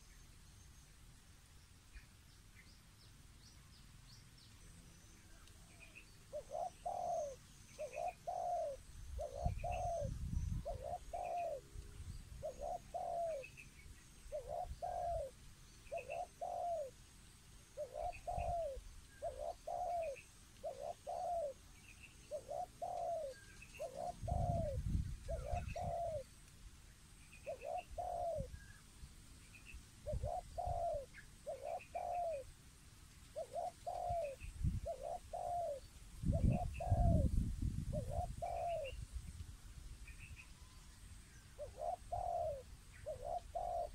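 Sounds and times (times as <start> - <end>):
dove cooing: 5.2 - 11.7, 12.4 - 13.5, 14.3 - 17.0, 17.8 - 21.6, 22.3 - 26.3, 27.4 - 28.8, 30.0 - 32.6, 33.3 - 39.0, 41.5 - 43.9.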